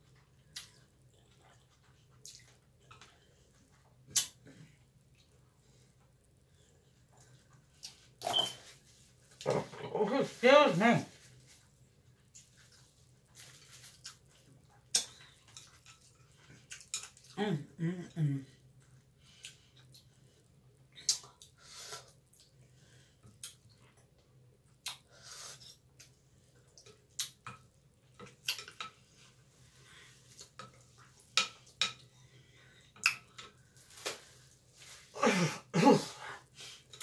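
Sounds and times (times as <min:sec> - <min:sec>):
person's voice: 0:09.5 - 0:11.1.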